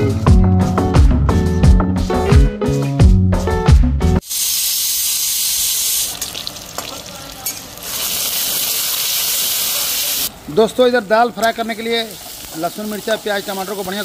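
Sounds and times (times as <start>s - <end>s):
background music: 0.0s - 4.2s
oil sizzling in a pan: 4.2s - 10.3s, 11.6s - 14.0s.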